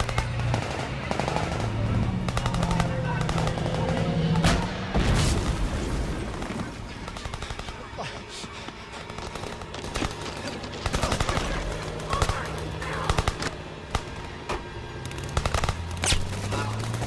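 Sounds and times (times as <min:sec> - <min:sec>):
automatic gunfire bursts: 0:00.0 - 0:04.0.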